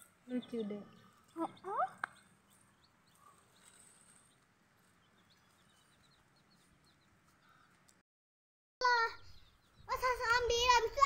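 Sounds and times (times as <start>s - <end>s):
chicks peeping: 0.4s - 7.4s.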